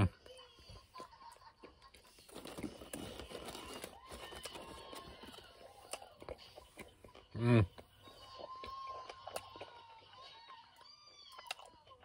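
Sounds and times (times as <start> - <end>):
paper packaging crinkling: 2.1 - 5.9.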